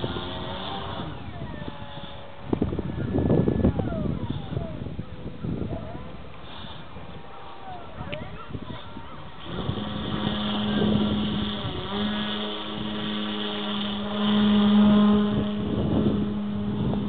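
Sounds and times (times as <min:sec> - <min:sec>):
model plane motor whine: 0:00.0 - 0:17.0.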